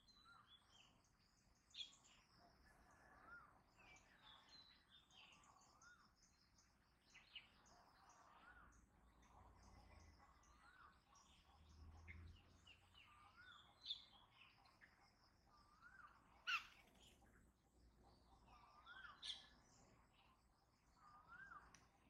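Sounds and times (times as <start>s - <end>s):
high bird twittering: 15.8s - 17.0s.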